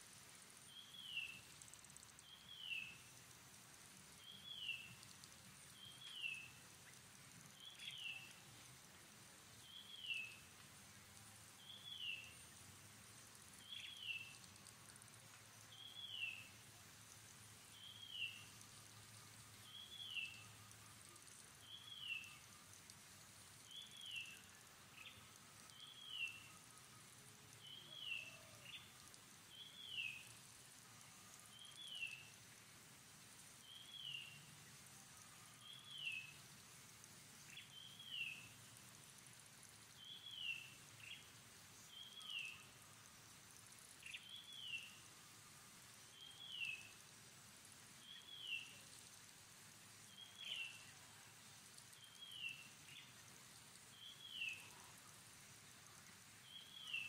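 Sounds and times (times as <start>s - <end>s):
faint high insect hiss: 0.0s - 57.0s.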